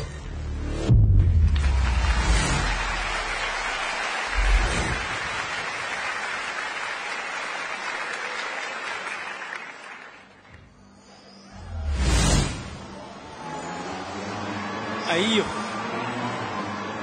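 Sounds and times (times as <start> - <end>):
short low boom: 0.8 - 3.6, 4.3 - 5.5
audience applauding: 1.4 - 10.7.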